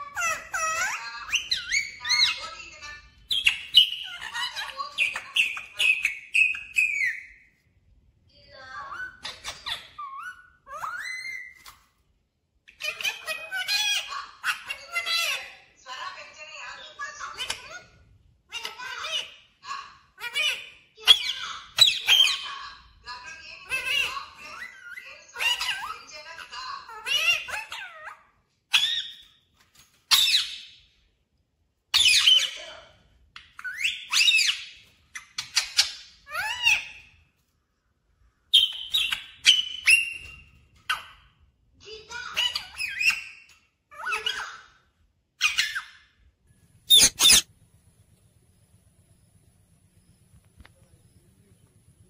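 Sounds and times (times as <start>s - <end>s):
parakeet speech-like chatter: 0.0s - 7.4s, 8.3s - 11.7s, 12.7s - 29.3s, 32.0s - 37.3s, 38.9s - 46.2s, 46.9s - 47.5s
parakeets whistling: 0.1s - 7.4s, 38.6s - 40.6s, 46.9s - 47.5s.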